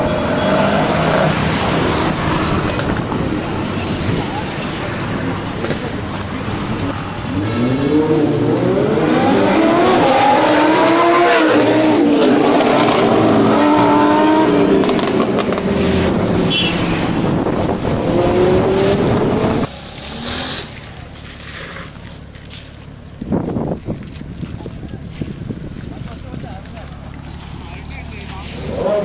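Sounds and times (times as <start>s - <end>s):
faint wind noise: 0.0s - 20.0s, 20.8s - 29.0s
sports car engine revving: 6.4s - 20.8s.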